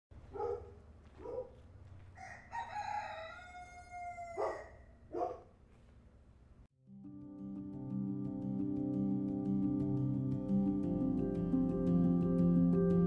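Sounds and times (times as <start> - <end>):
rooster crowing: 2.1 - 4.9.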